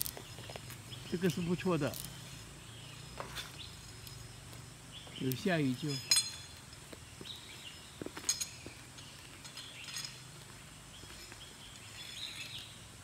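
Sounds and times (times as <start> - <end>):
faint bird chirps: 0.0 - 12.9
sharp metallic clink: 5.4 - 6.8, 8.2 - 10.3.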